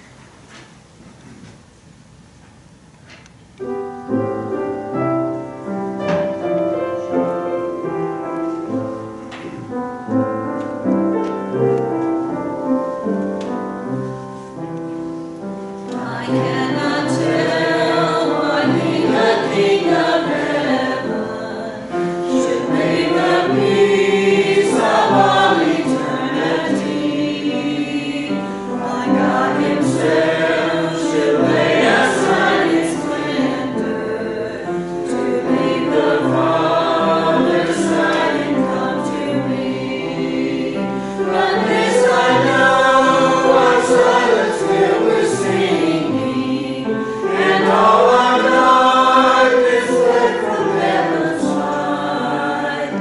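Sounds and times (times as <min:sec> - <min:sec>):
choir singing a hymn: 0:03.6 - 0:53.0.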